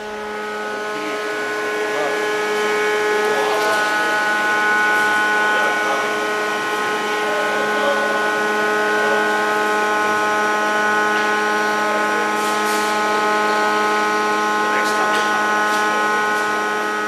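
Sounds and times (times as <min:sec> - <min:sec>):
machine hum: 0:00.0 - 0:17.0.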